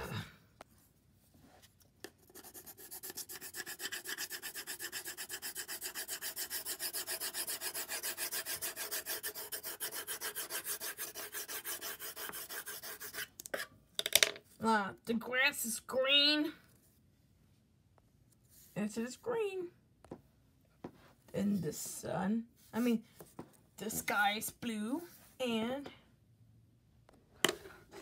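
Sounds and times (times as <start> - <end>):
crayon scribbling on paper: 2.1 - 13.3.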